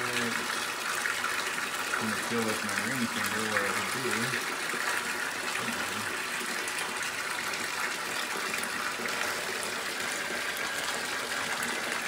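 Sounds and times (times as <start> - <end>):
water running into bathtub: 0.0 - 12.0.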